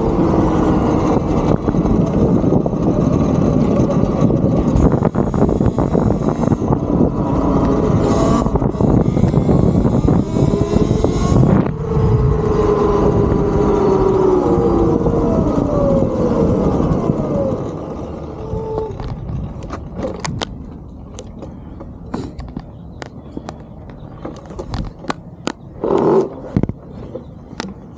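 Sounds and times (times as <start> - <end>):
electric motor whine: 0.0 - 19.2
wind on microphone: 0.0 - 21.4, 22.4 - 27.9
tyre noise: 0.0 - 27.9.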